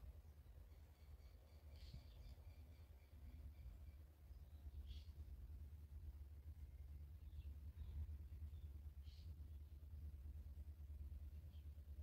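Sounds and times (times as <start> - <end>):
low rumble on microphone: 3.2 - 12.0.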